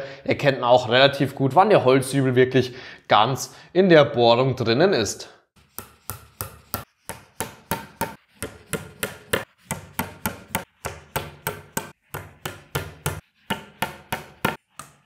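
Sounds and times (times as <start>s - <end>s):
hammer tapping wooden dowels: 5.8s - 15.0s.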